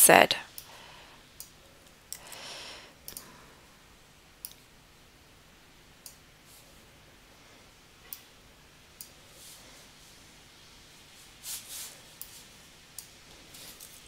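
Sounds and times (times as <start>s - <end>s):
soft rustle: 9.2s - 10.3s, 11.0s - 14.0s.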